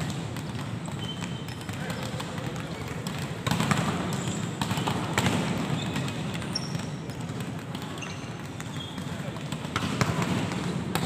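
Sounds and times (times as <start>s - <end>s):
volleyball smacks echoing: 0.0s - 11.0s.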